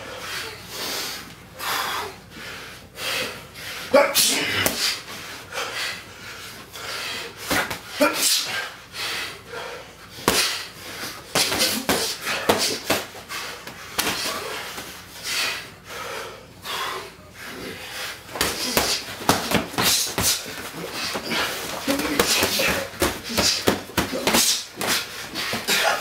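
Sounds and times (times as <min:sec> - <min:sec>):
boxing gloves smacking: 0:04.4 - 0:05.0, 0:07.5 - 0:07.8, 0:10.2 - 0:14.9, 0:18.3 - 0:26.0.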